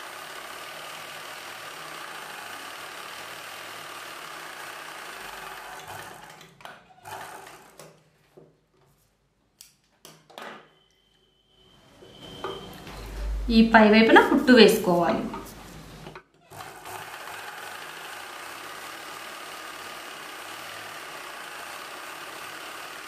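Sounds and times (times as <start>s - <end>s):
sewing machine running: 0.0s - 7.9s, 15.4s - 23.0s.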